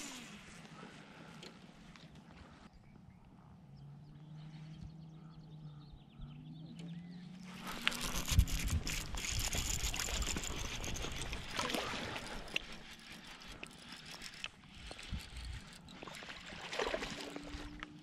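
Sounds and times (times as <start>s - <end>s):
fish thrashing at the surface: 7.5s - 13.5s, 15.9s - 17.7s
fishing reel being wound: 7.5s - 16.5s
water splashing and churning: 7.5s - 18.0s.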